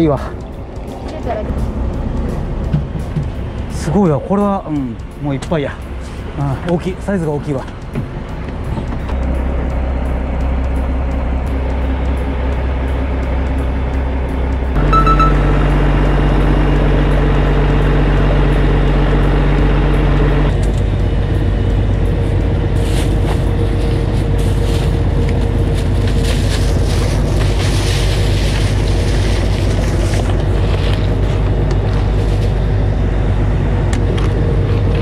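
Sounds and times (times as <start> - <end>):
boat engine humming: 0.0 - 35.0.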